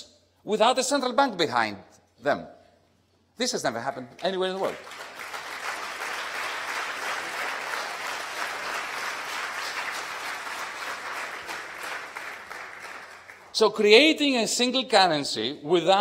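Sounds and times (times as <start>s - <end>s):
audience applauding: 4.4s - 13.6s.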